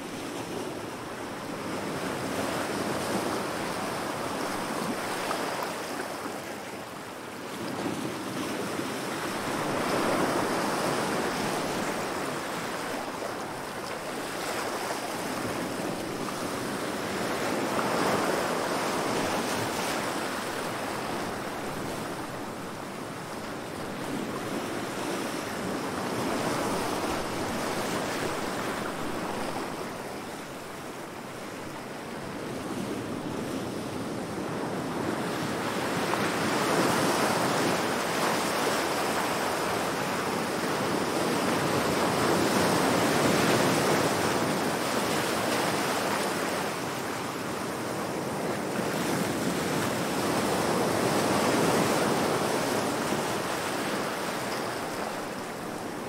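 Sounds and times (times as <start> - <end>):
waves washing onto shore: 0.0 - 56.0.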